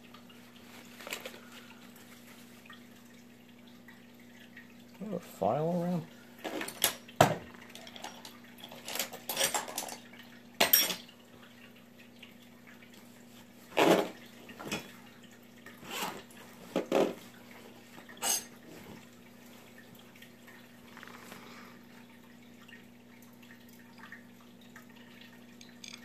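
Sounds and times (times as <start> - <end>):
small metal tools clinking: 25.6 - 26.0.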